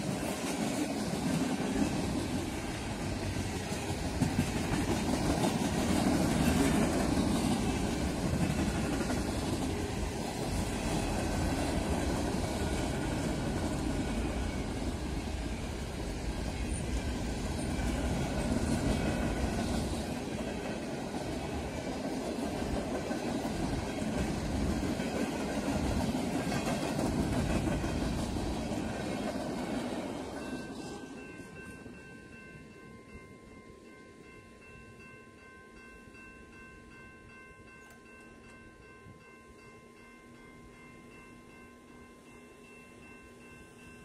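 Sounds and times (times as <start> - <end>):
freight train wheels rumbling: 0.0 - 32.7.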